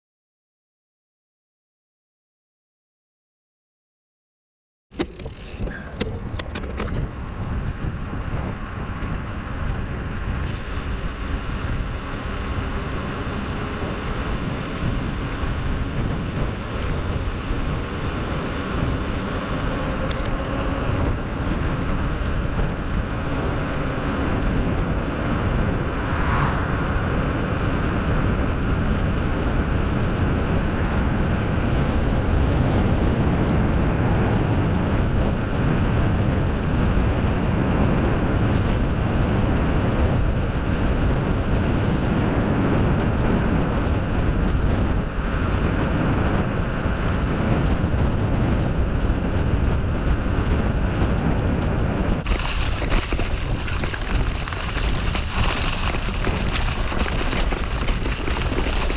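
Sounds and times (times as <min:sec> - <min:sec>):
tyre noise on asphalt: 0:04.9 - 0:36.9, 0:50.3 - 0:58.9
wind buffeting microphone: 0:04.9 - 0:58.9.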